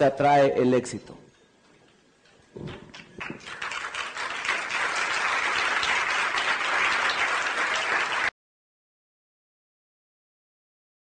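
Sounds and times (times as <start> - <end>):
audience applauding: 2.7 - 8.3.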